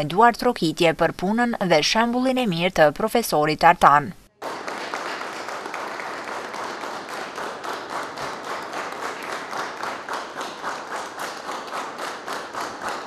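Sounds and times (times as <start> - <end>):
crowd applauding in rhythm: 4.4 - 13.0.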